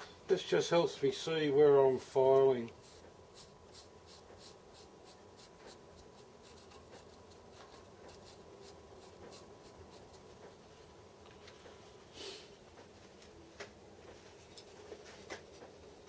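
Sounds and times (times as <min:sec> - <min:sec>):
marker scratching on metal: 0:02.8 - 0:10.3.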